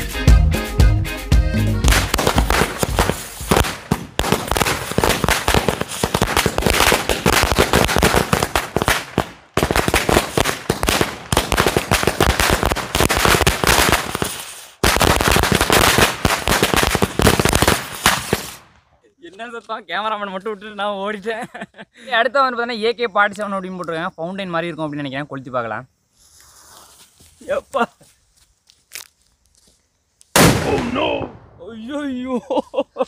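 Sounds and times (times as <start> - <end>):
firecrackers going off: 1.9 - 18.8.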